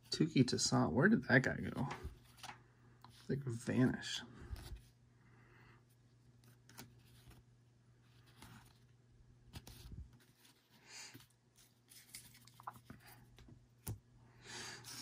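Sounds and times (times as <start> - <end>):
trading cards flipped by hand: 1.9 - 2.6, 6.4 - 7.4, 9.5 - 10.6, 11.6 - 14.0.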